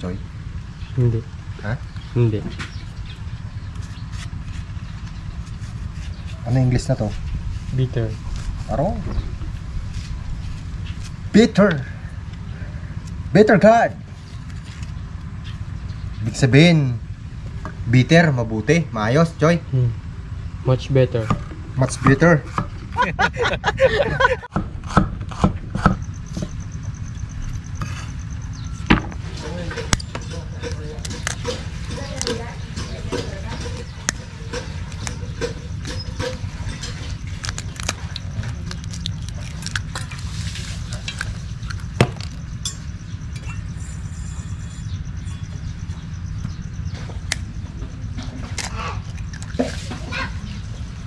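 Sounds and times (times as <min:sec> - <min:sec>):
low steady hum: 0:00.0 - 0:51.0
steady low rumble: 0:00.0 - 0:51.0
cleaver chopping on wooden block: 0:24.5 - 0:26.5
eggs cracking on a steel bowl: 0:29.8 - 0:42.8.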